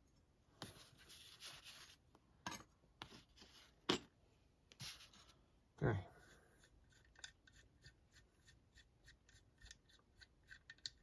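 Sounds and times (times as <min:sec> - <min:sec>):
soft rubbing shuffle: 0:04.7 - 0:05.4.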